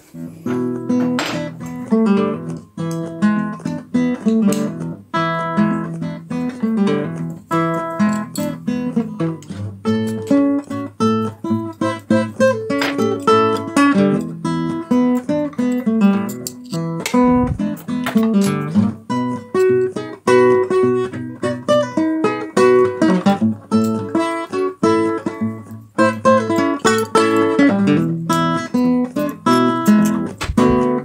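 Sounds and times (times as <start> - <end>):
guitar picking single notes: 17.0 - 21.0, 22.6 - 31.0.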